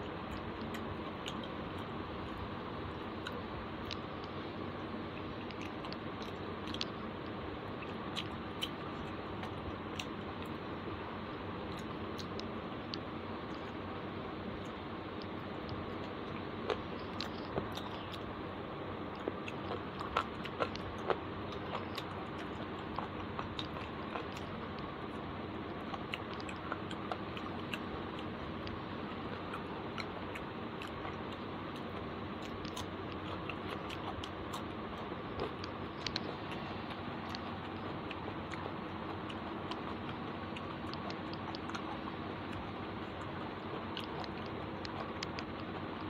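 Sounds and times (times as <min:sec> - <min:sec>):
person chewing food: 0:00.0 - 0:46.0
wet clicks and crunches: 0:03.3 - 0:04.4, 0:05.2 - 0:10.6, 0:14.6 - 0:18.4, 0:25.7 - 0:46.0.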